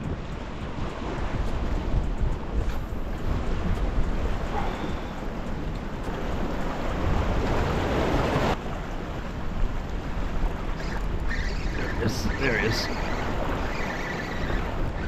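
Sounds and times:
wind buffeting microphone: 0.0s - 15.0s
waves washing against rocks: 10.0s - 15.0s.

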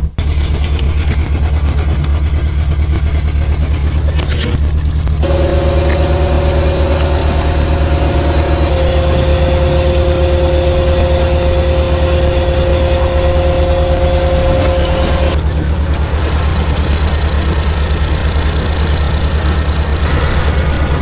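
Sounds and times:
engine rumbling: 0.0s - 21.0s
steady whine: 5.2s - 20.0s.

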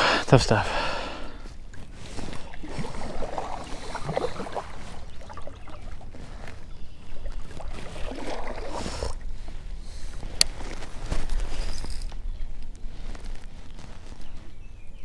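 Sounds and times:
paddle splashing in water: 1.5s - 11.0s.

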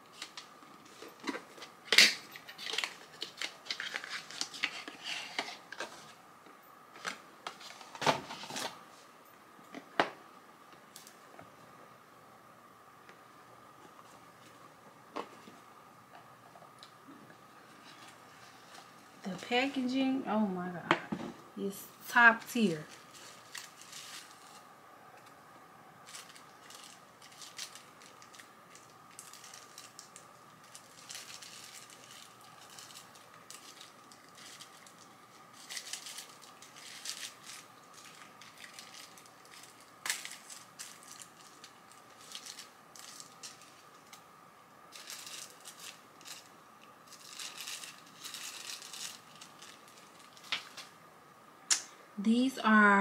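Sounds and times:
packaging rustling and crinkling: 0.0s - 6.2s, 6.9s - 8.8s, 22.6s - 24.7s, 26.0s - 44.3s, 44.9s - 51.0s.

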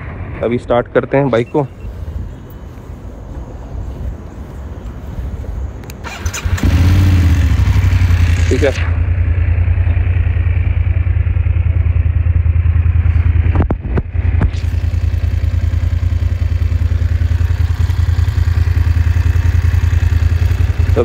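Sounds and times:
sharp clicks: 5.8s - 6.7s
motorcycle engine idling: 6.4s - 21.0s.

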